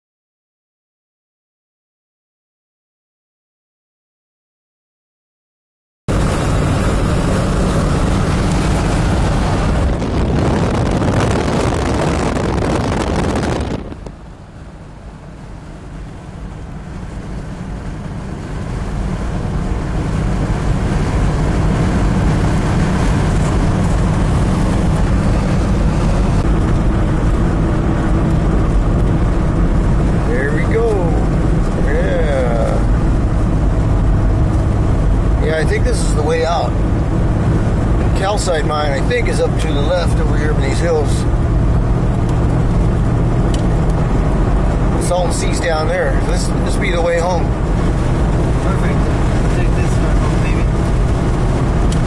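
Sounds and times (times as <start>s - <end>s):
vehicle cabin road noise: 6.1s - 52.0s.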